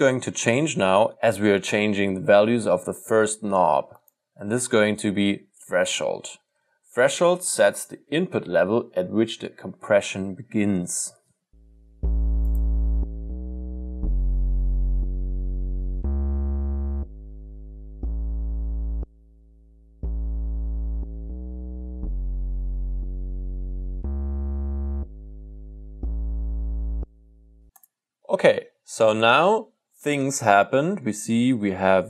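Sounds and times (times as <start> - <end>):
sustained synth bass notes: 11.6 - 27.8.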